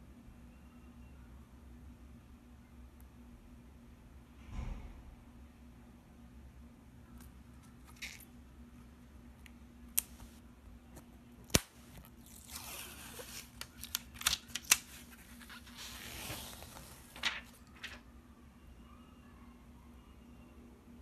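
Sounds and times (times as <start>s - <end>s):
plastic sheet rustling and crackling: 12.2s - 18.0s.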